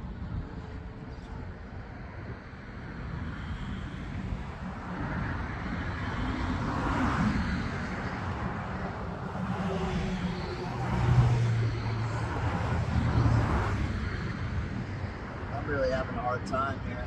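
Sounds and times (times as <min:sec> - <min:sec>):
passing cars rumbling: 0:00.0 - 0:17.0
vehicle engine hum: 0:00.0 - 0:17.0.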